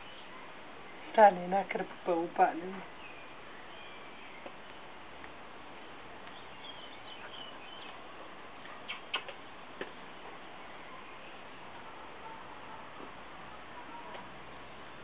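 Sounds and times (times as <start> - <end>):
short sharp clicks: 8.8 - 9.4.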